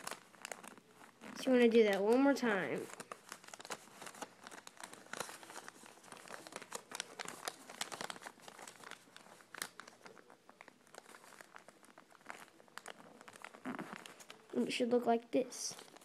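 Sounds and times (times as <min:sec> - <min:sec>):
paper crinkling and rustling: 0:00.0 - 0:14.9, 0:15.6 - 0:16.0.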